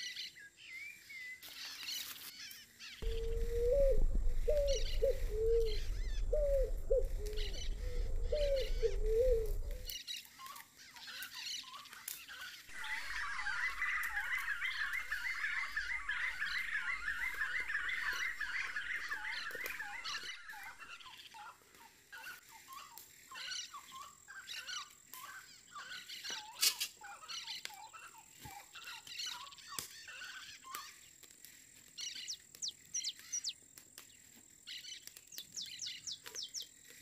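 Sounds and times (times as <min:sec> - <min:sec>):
low wavering animal call: 0:03.0 - 0:09.9, 0:12.7 - 0:21.0
rapid chattering animal calls: 0:03.0 - 0:09.9, 0:12.7 - 0:21.0.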